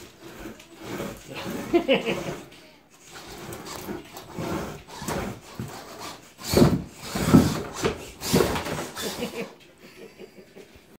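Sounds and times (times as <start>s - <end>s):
rc car knocking and scraping on wood: 0.0s - 9.4s.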